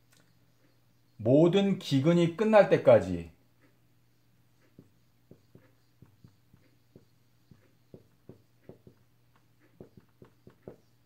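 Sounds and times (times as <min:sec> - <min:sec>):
faint low hum: 0:00.0 - 0:11.0
marker pen on whiteboard: 0:03.6 - 0:11.0.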